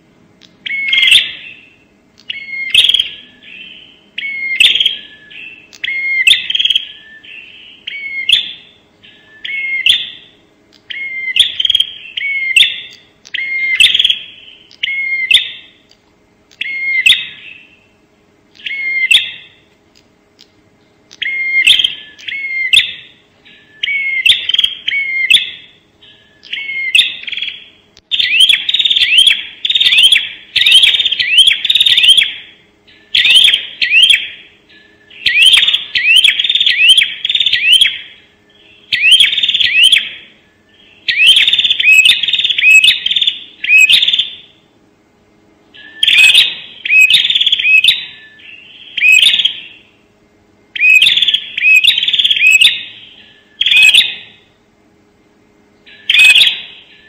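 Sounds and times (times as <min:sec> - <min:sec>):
faint steady hum: 0:00.0 - 0:57.0
bird chirping rapidly: 0:00.6 - 0:15.8, 0:16.6 - 0:18.0, 0:18.6 - 0:19.7, 0:20.8 - 0:44.6, 0:45.7 - 0:50.0, 0:50.7 - 0:54.5, 0:55.8 - 0:57.0.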